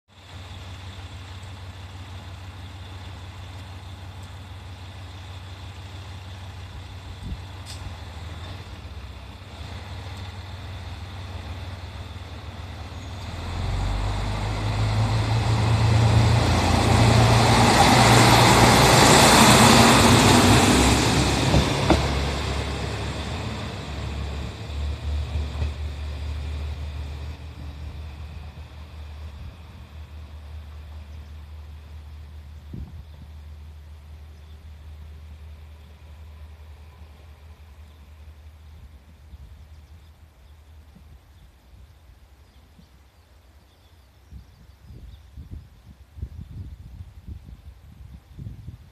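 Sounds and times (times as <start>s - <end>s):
diesel railcar idling: 0.1s - 41.2s
railcar passing by: 0.1s - 44.2s
diesel engine revving: 5.2s - 29.5s.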